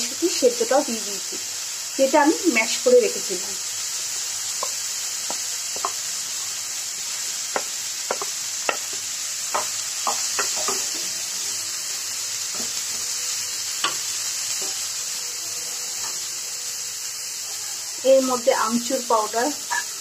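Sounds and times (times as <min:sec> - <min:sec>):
frying sizzle: 0:00.0 - 0:20.0
spatula scraping a pan: 0:04.4 - 0:13.2.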